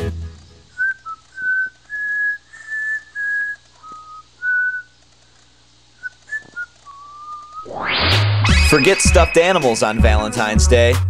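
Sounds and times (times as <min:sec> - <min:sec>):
whistled chirps: 0:00.7 - 0:05.0, 0:06.0 - 0:09.9
person whistling short notes: 0:00.8 - 0:04.9, 0:06.0 - 0:07.7, 0:08.5 - 0:09.8.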